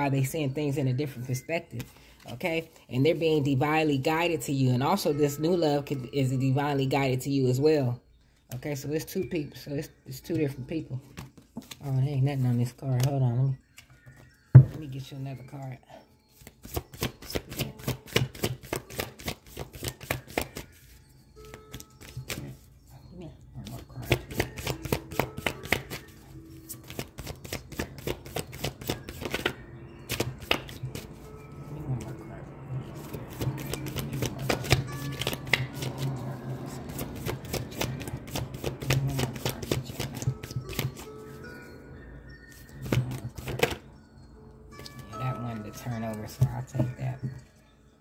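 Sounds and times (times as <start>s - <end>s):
cards shuffled by hand: 11.2s - 11.8s, 16.4s - 20.7s, 24.0s - 31.3s, 33.0s - 36.2s, 36.8s - 41.1s, 42.8s - 43.8s.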